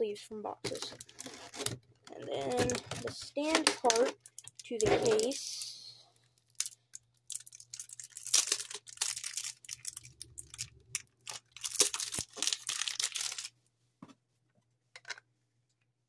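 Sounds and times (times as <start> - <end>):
packaging tearing and crinkling: 0.7 - 1.8, 6.4 - 13.5.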